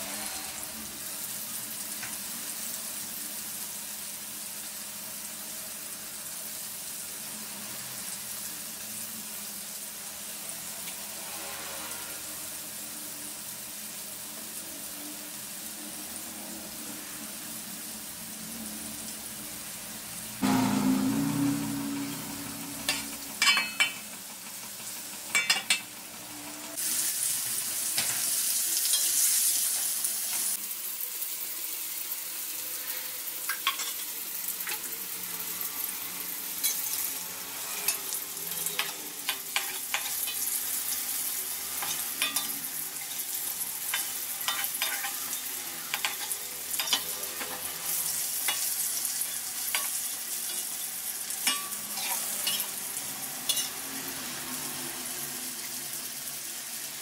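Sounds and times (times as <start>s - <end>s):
metal spatula scraping wok: 0.0s - 0.9s, 10.6s - 12.8s, 20.4s - 25.9s, 36.4s - 54.5s
food frying in hot oil: 0.0s - 57.0s.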